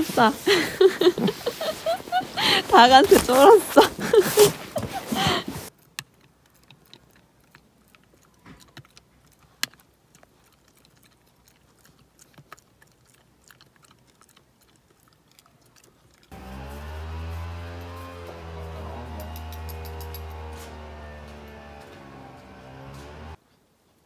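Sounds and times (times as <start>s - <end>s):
dog chewing: 5.7s - 16.4s.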